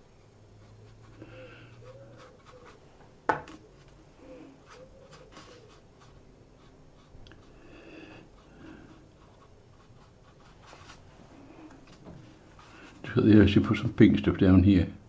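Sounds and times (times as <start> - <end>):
brush strokes on paper: 0.6 - 2.8, 4.6 - 7.6, 8.3 - 13.2.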